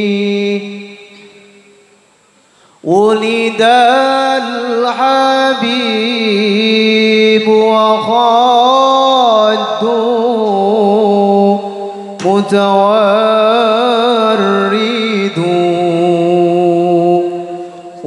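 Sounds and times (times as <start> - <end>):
man singing devotional song: 0.0 - 1.7, 2.7 - 18.0.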